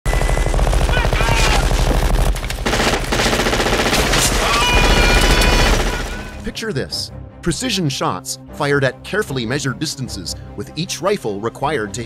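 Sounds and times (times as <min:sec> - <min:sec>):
automatic gunfire: 0:00.1 - 0:06.4.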